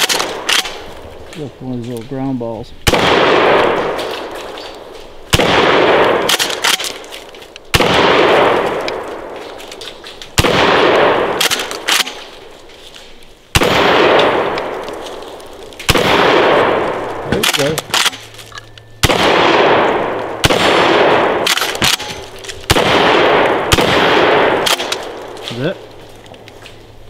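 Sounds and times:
shotgun shots echoing: 0.0 - 0.9, 2.8 - 9.5, 10.3 - 12.5, 13.5 - 18.3, 19.0 - 25.9.

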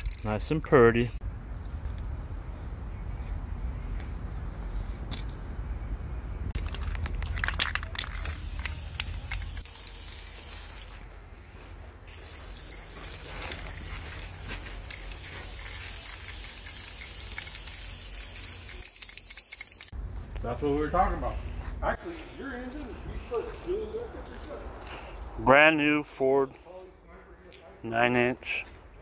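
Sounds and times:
aerosol spray paint hissing: 8.1 - 11.0, 12.1 - 20.0.

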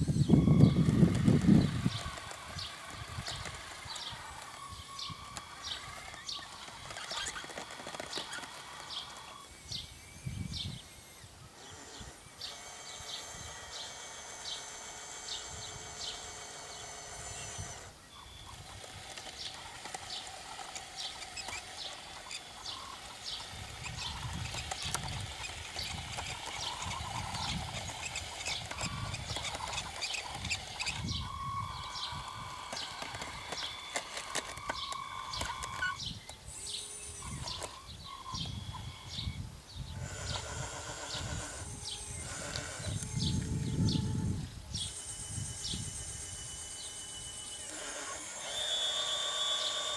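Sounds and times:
electric drive whining: 0.0 - 49.9
sharp clicks from tracks: 0.6 - 9.4, 18.6 - 31.2, 32.0 - 36.4.

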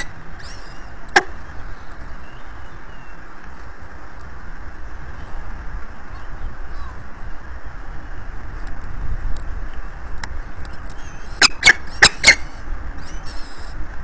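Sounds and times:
wind rumble: 0.0 - 14.0
falcon chick squeaky calls: 10.9 - 13.7.

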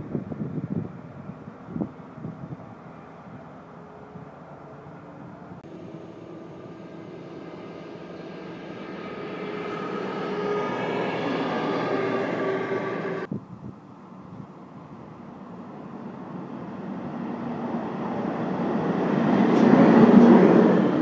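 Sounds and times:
diesel locomotive engine drone: 0.0 - 21.0.

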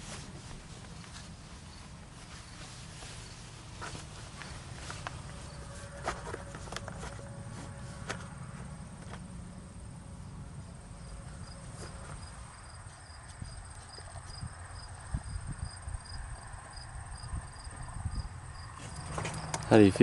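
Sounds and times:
insects trilling: 0.9 - 7.4, 8.3 - 20.0
soft bumps: 11.0 - 15.4.

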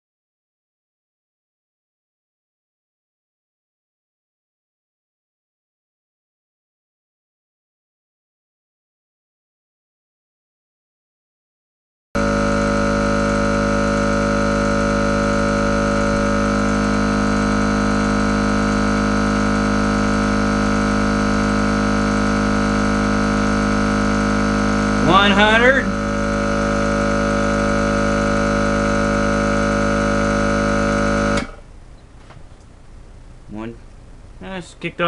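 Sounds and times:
air compressor humming: 12.2 - 35.0.

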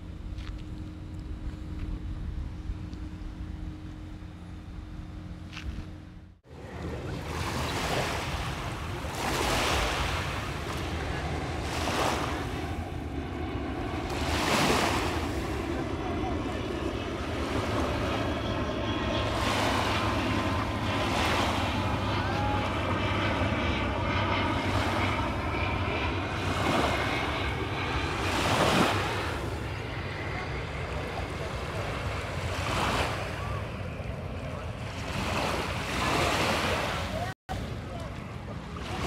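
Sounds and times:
low steady drone: 0.0 - 9.2
waves breaking on sand: 6.5 - 12.9, 13.9 - 16.0, 19.2 - 22.8, 26.3 - 27.4, 28.1 - 29.4, 31.4 - 33.6, 34.8 - 37.9, 38.6 - 39.0.

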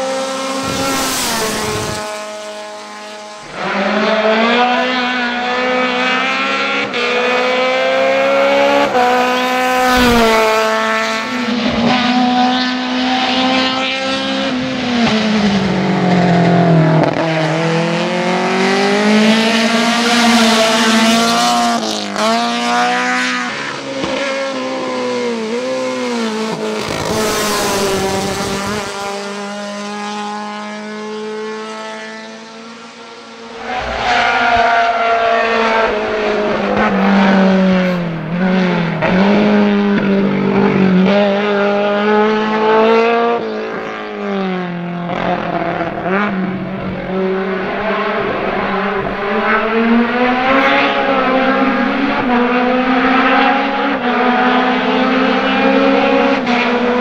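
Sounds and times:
car engine racing through gears: 0.0 - 57.0.

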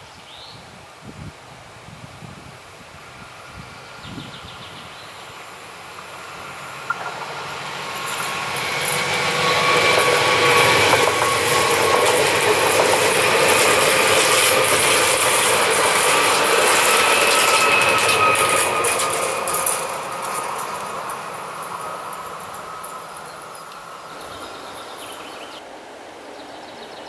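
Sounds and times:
train wheels on rails: 3.0 - 25.6
steady whining tones: 5.3 - 25.4.

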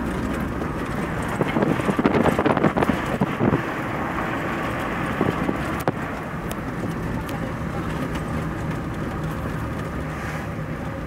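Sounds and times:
wind buffeting microphone: 0.0 - 9.9
road vehicle rumble: 0.0 - 11.0.

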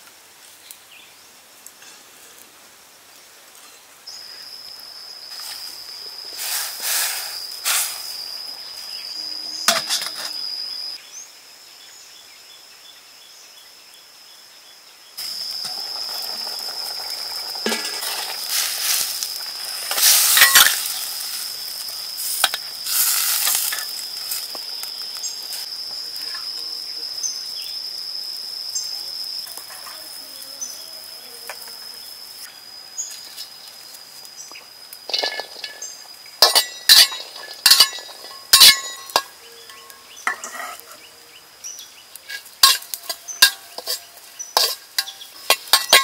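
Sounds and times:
liquid sizzling in a wok: 4.1 - 10.9, 15.2 - 46.0
high-pitched insect drone: 4.1 - 11.0, 15.2 - 46.0
metal ladle scraping wok: 15.6 - 24.5, 35.1 - 41.1, 42.2 - 46.0.

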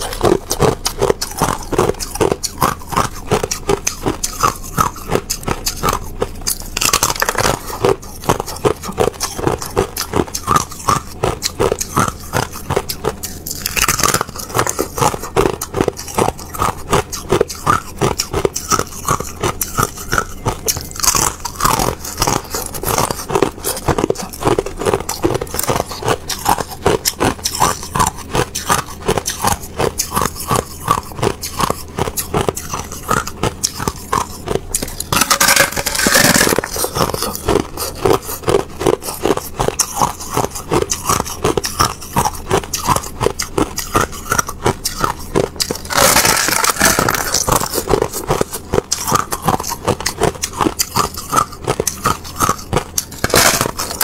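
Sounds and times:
ice being crunched by chewing: 0.0 - 54.0.

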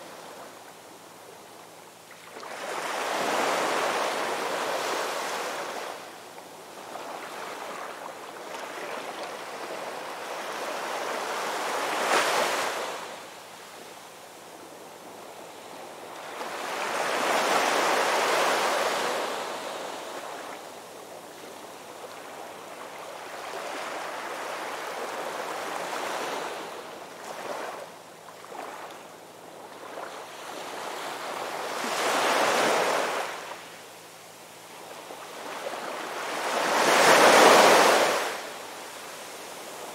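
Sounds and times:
ocean surf breaking on beach: 35.5 - 39.9.

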